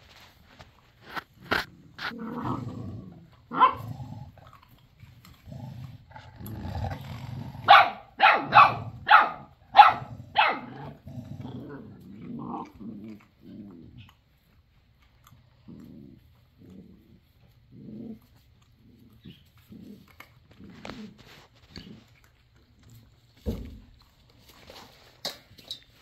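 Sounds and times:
puppies growling: 0:00.8 - 0:24.5
puppy high yaps: 0:07.7 - 0:10.8.

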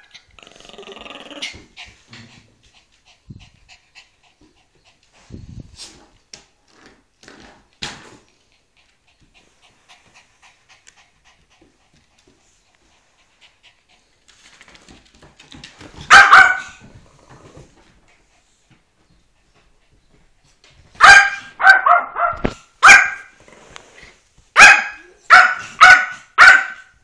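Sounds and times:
dogs playing with clicks and scuffles: 0:04.4 - 0:16.2
short high dog bark: 0:16.1 - 0:16.7, 0:21.0 - 0:23.3, 0:24.6 - 0:26.9.

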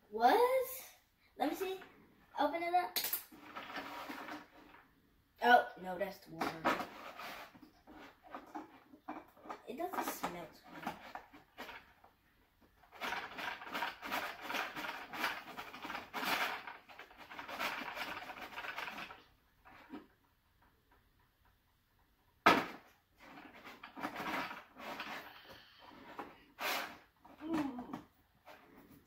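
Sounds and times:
plastic toy mixer churning: 0:03.4 - 0:04.8, 0:12.8 - 0:20.2, 0:23.2 - 0:28.6.

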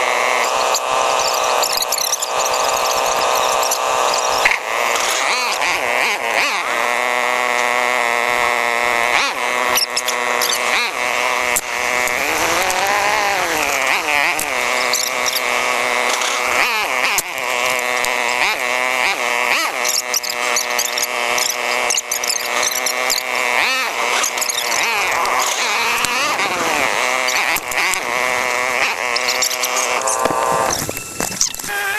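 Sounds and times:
sped up engine whine: 0:00.0 - 0:31.9.

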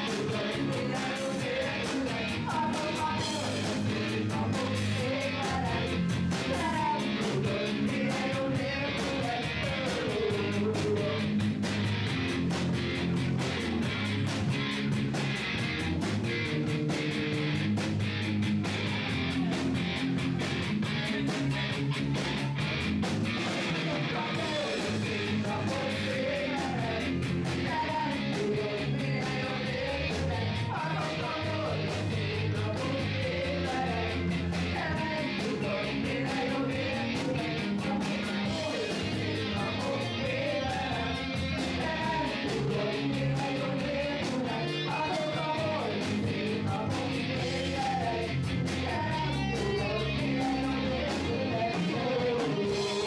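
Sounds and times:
person singing: 0:00.0 - 0:11.6, 0:23.7 - 0:53.0
distorted electric guitar: 0:00.0 - 0:53.0
drum kit beat: 0:00.0 - 0:53.0.

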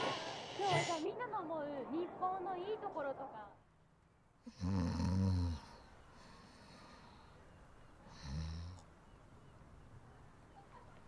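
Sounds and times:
person snoring: 0:04.5 - 0:05.8, 0:08.1 - 0:08.8
breathy exhale: 0:05.6 - 0:07.5.

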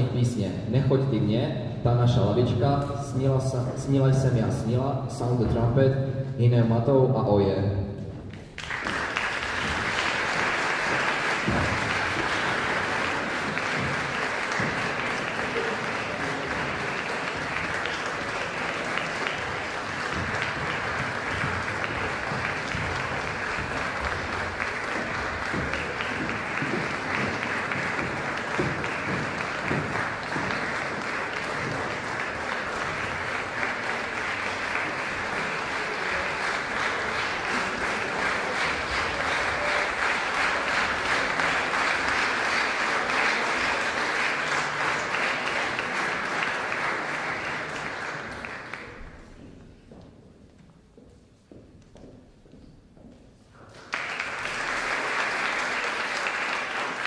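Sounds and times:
audience applauding: 0:08.3 - 0:49.5, 0:53.6 - 0:57.0.

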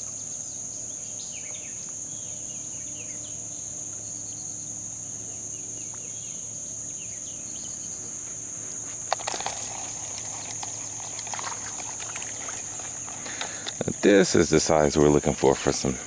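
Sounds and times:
insect chorus: 0:00.0 - 0:16.0
fishing rod clicks and rattles: 0:09.0 - 0:14.3.

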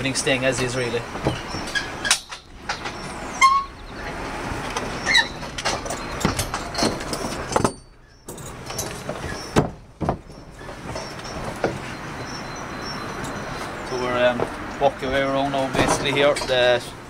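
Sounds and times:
outdoor background noise: 0:00.0 - 0:17.0
footsteps on scaffold boards: 0:08.9 - 0:12.4.

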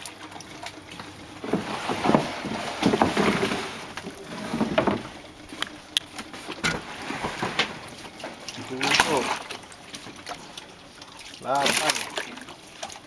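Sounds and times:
water splashing around boat: 0:00.0 - 0:13.0.

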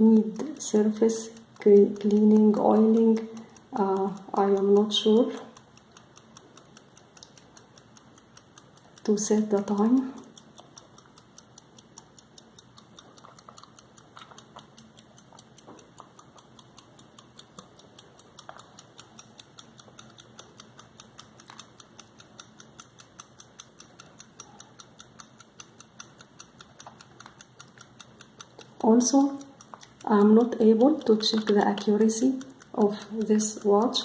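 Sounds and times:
pocket watch ticking: 0:00.0 - 0:34.0
fingers clicking on watch case: 0:10.4 - 0:34.0.

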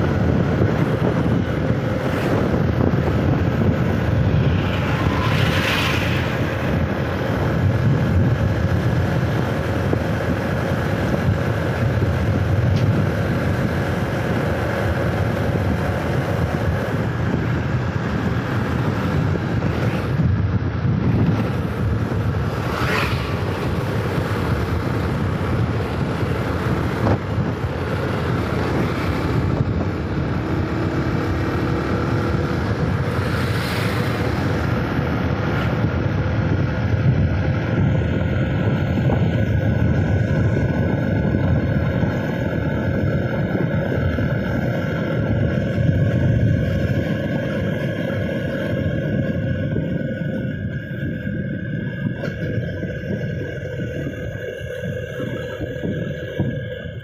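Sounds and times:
faint engine hum: 0:00.0 - 0:57.0
vehicle road noise: 0:00.0 - 0:57.0
wind rushing over microphone: 0:00.0 - 0:57.0
vehicle swishing past: 0:03.2 - 0:08.2, 0:22.4 - 0:24.4, 0:28.3 - 0:34.8.

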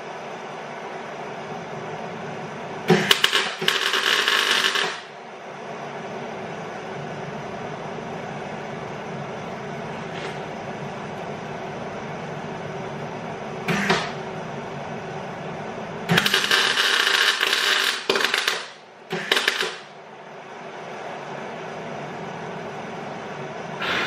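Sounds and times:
welder arc crackling: 0:02.9 - 0:05.2, 0:16.1 - 0:19.9.

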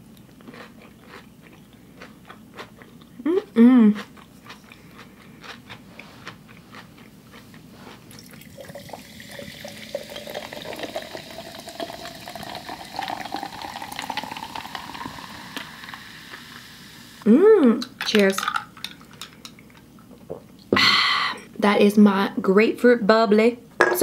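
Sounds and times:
sparkling water pouring into a jar: 0:08.2 - 0:16.6.

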